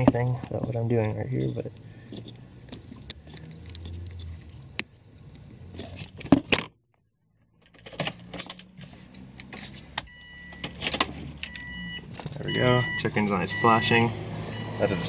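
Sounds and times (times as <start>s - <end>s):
keys jingling: 7.6s - 8.9s, 10.4s - 12.6s.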